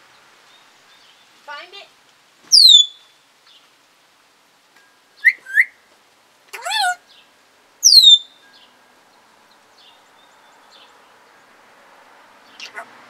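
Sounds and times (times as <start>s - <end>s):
parrot whistling and chirping: 2.5s - 3.1s, 5.2s - 5.8s, 7.8s - 8.4s.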